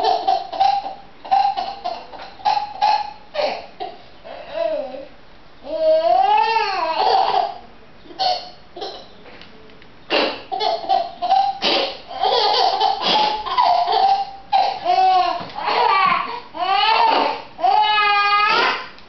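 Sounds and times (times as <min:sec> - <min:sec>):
baby laughing: 0:00.0 - 0:05.1, 0:05.7 - 0:09.1, 0:10.5 - 0:18.8.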